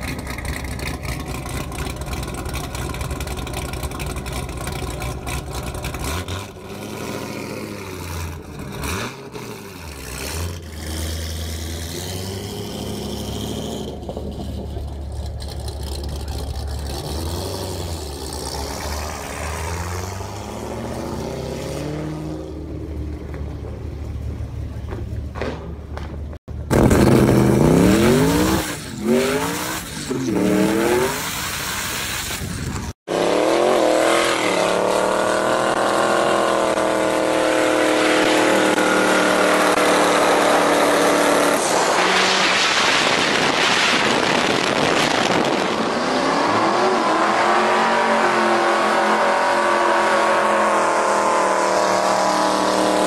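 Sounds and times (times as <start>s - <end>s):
car engine idling and revving: 0.0s - 53.0s
car accelerating hard: 33.1s - 53.0s.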